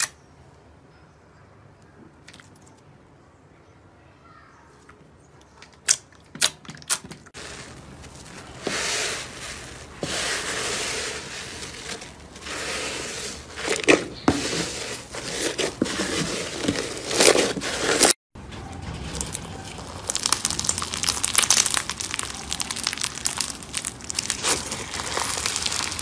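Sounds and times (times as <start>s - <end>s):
slime crackling and crunching: 19.2s - 26.0s
slime clicking and popping: 20.0s - 26.0s.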